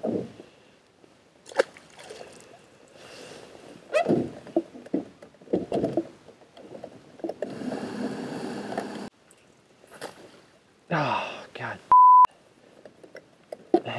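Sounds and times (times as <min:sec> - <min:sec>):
knocks and thumps of gear: 0:04.0 - 0:07.5.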